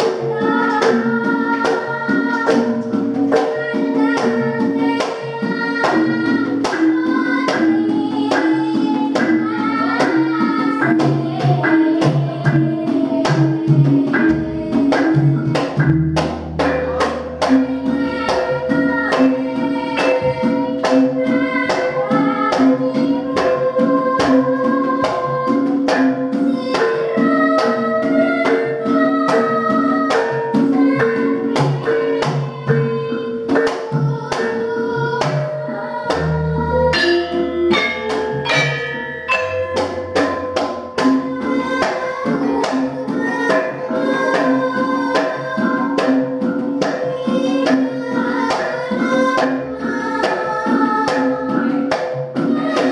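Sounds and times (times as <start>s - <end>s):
gamelan playing: 0.0s - 52.9s
girl singing ornamented lines: 17.1s - 46.4s.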